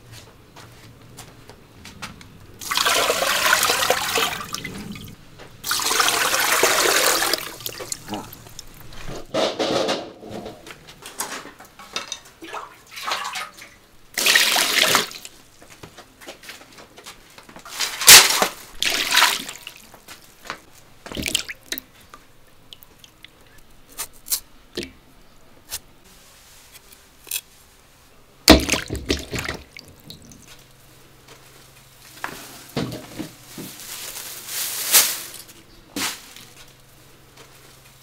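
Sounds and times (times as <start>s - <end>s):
water splashing in a steel basin: 2.6s - 9.0s, 12.4s - 15.3s, 18.0s - 19.8s, 21.1s - 21.9s, 28.5s - 30.4s.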